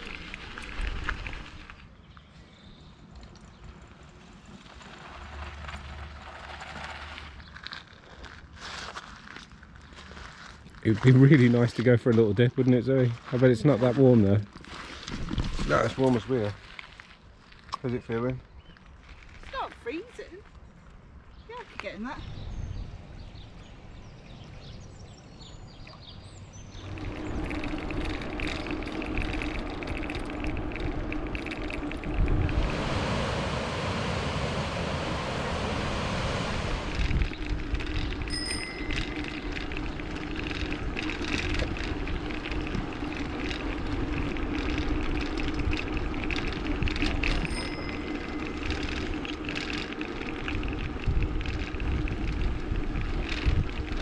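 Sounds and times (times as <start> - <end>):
bike rattling: 0.0 - 2.1, 3.1 - 12.2, 13.2 - 20.0, 24.0 - 54.0
bicycle tyre noise: 0.0 - 12.2, 13.0 - 19.7, 26.4 - 54.0
steady hum: 26.5 - 54.0
rush of noise: 26.8 - 54.0.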